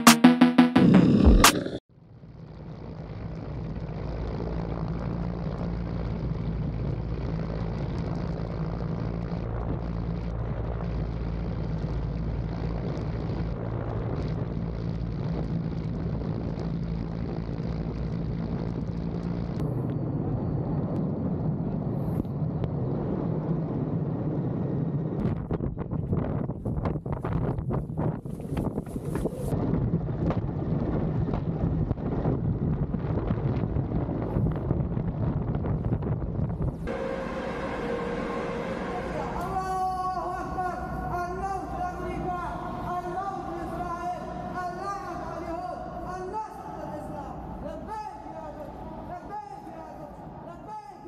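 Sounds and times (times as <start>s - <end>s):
helicopter rotor and engine drone: 36.8s - 46.5s
faint high whine: 36.9s - 50.5s.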